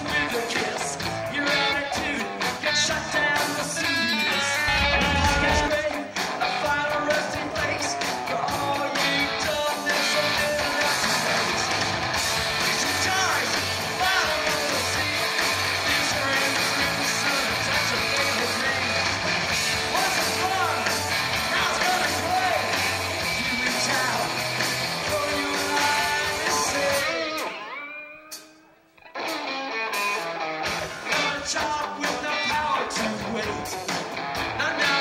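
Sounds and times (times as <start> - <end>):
drums: 0.0 - 35.0
electric guitar: 0.0 - 35.0
person singing: 1.4 - 11.5, 25.0 - 27.9.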